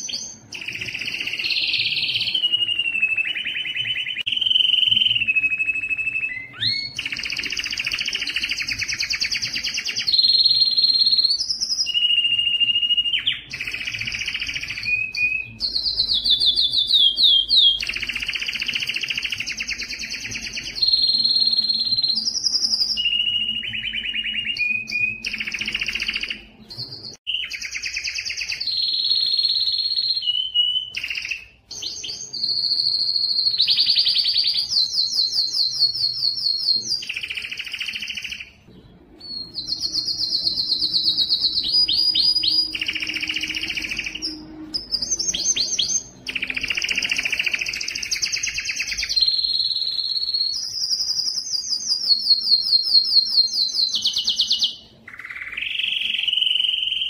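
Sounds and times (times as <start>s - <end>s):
canary singing trills: 0.0s - 57.0s.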